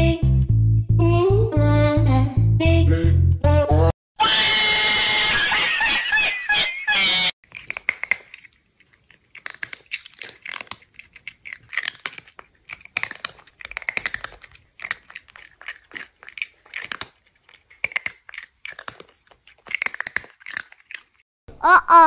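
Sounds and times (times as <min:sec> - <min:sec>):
crunchy food being chewed: 0:07.4 - 0:21.3.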